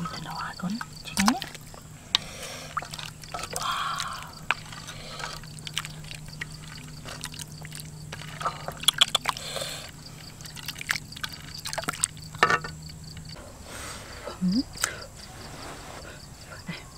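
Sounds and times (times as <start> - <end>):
broth pouring and sloshing: 0.0 - 12.4
ladle knocking pot and bowl: 12.4 - 12.8.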